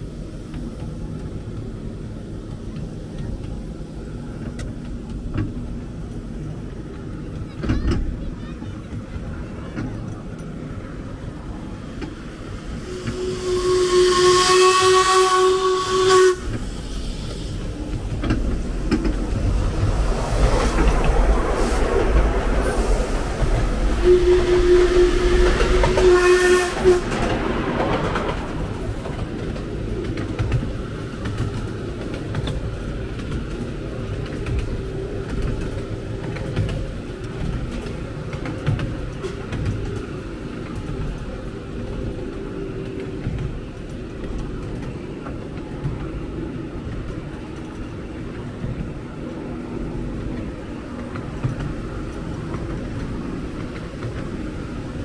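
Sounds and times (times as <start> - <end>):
train rumbling: 0.0 - 55.0
steam hissing: 12.4 - 31.2
steam locomotive whistle: 12.8 - 16.6, 24.0 - 27.2.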